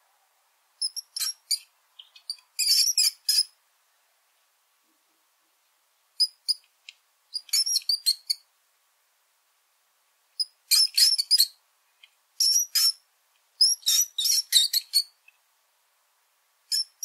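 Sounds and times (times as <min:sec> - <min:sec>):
mouse squeaking: 0:00.8 - 0:03.5, 0:06.2 - 0:06.6, 0:07.3 - 0:08.4, 0:10.4 - 0:11.6, 0:12.4 - 0:13.0, 0:13.6 - 0:15.2, 0:16.7 - 0:17.0.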